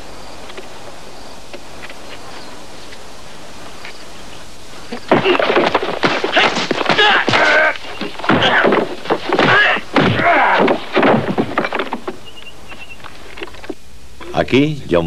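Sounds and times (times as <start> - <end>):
background hiss: 0.0 - 15.0
thuds of blows: 4.9 - 12.2
people yelling: 6.3 - 8.8, 9.4 - 10.9.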